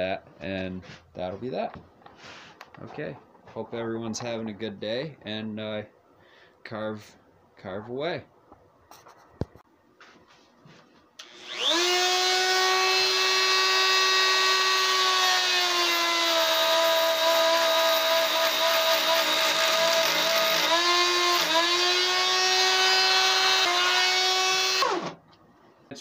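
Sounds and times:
drill bit boring into wood: 11.2s - 25.2s
electric drill whining: 11.2s - 25.2s.

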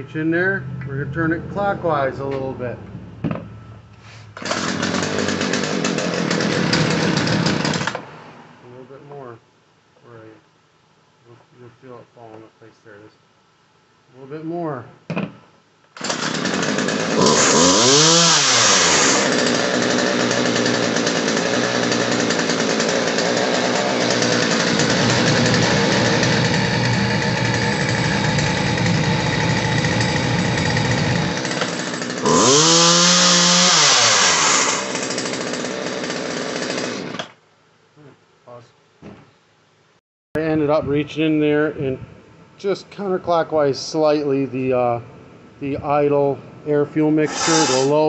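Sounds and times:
chainsaw engine revving and idling: 4.4s - 8.1s, 16.0s - 37.3s, 47.3s - 48.0s.

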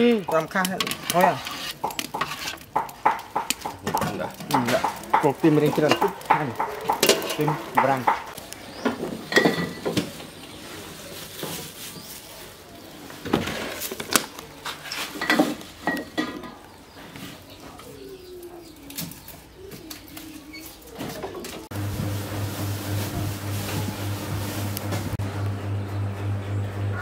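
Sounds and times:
sharp knocks and clatters: 0.2s - 10.1s.

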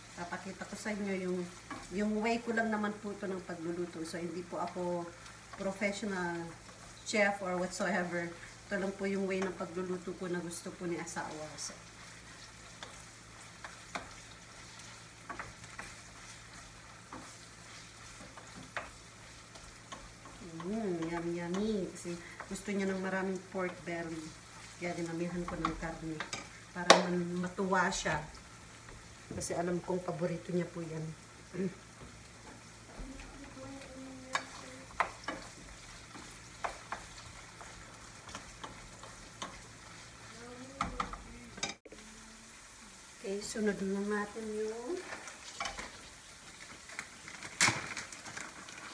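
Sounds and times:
food sizzling in a frying pan: 0.0s - 48.9s
wooden spoon tapping a pan: 17.1s - 24.2s, 25.3s - 27.2s, 34.3s - 39.7s, 40.8s - 41.8s.

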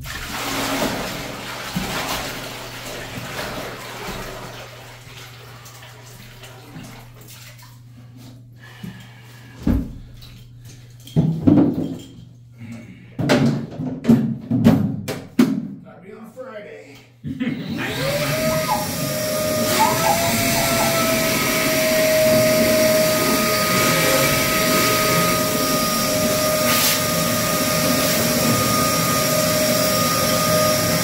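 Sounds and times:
water poured into a bathtub: 0.0s - 8.1s.

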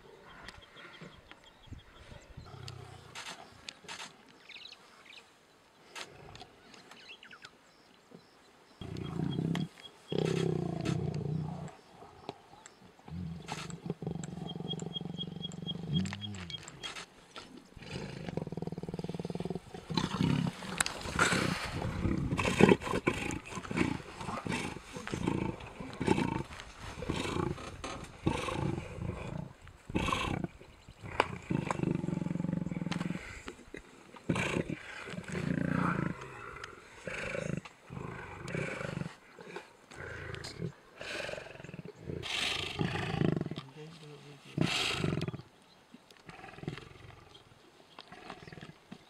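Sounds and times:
lions growling: 8.8s - 17.0s, 17.8s - 43.6s, 46.2s - 48.8s.

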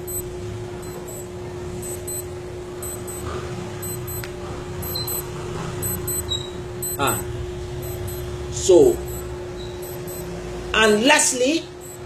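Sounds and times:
constant hum: 0.0s - 8.4s.

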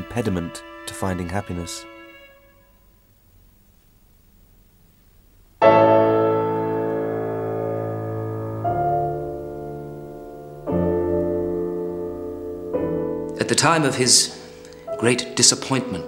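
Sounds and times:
piano playing slow chords: 5.6s - 16.0s.

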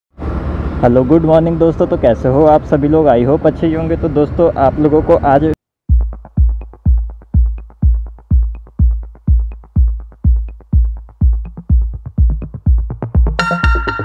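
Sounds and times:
booming kick drum: 5.9s - 14.0s.

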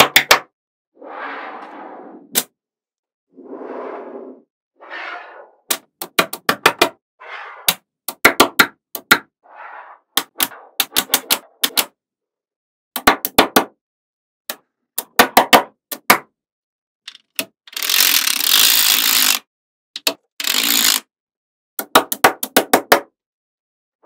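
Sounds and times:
strip scraping along balls: 20.4s - 21.1s.

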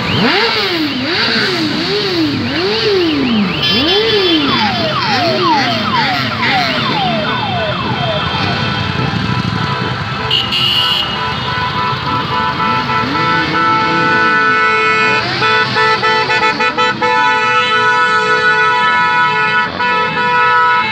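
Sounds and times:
siren chirps: 0.0s - 9.6s
passing traffic: 0.0s - 20.9s
siren wailing: 2.2s - 9.6s.

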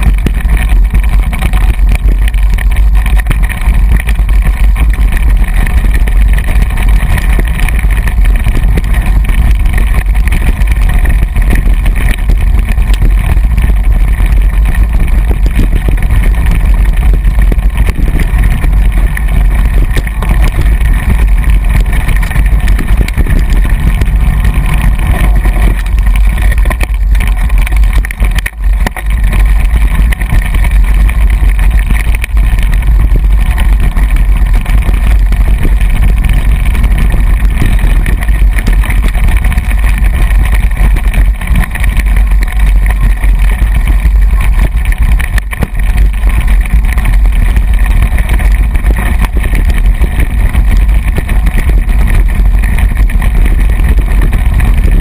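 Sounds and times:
wind buffeting microphone: 0.0s - 55.0s.

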